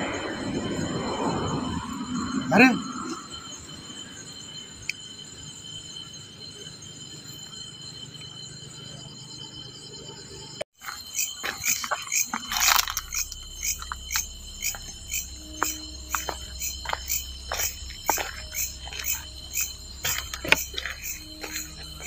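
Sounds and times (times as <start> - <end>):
crickets chirping: 0.0 - 22.0
high insect trill: 0.0 - 22.0
footsteps on dirt path: 10.8 - 22.0.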